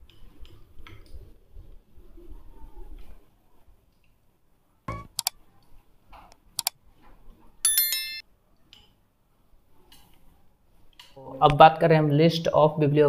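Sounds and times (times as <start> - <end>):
sharp clicks: 4.9 - 5.4, 6.6 - 6.8
bright bell chime: 7.7 - 8.2.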